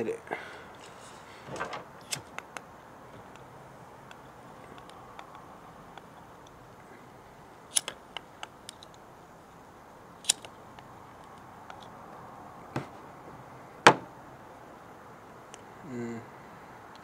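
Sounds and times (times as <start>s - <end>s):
faint steady background noise: 0.0s - 17.0s
lighter clicking: 7.7s - 9.0s, 10.2s - 10.9s.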